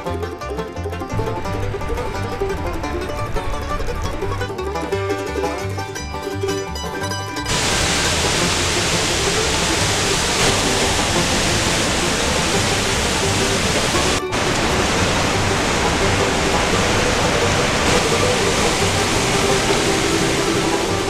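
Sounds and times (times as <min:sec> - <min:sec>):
faint music: 0:00.0 - 0:21.0
river water rushing: 0:07.4 - 0:21.0.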